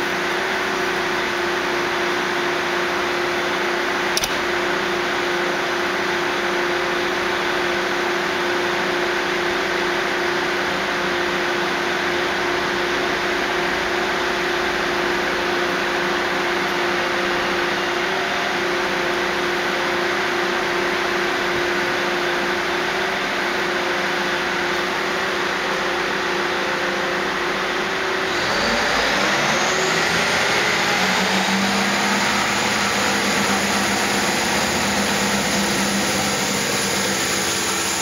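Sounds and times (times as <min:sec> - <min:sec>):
short click: 0:04.1 - 0:04.6
diesel train idling: 0:28.6 - 0:38.0.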